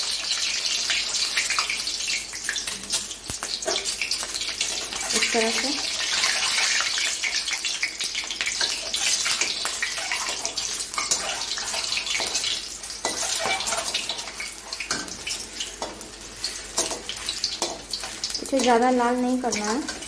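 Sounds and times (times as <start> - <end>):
eggs sizzling in oil: 0.0 - 20.0
metal spatula scraping pan: 8.6 - 18.3.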